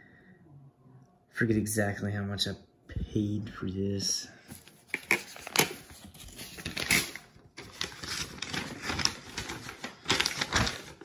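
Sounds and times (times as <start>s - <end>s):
paper rustling: 4.5s - 11.0s.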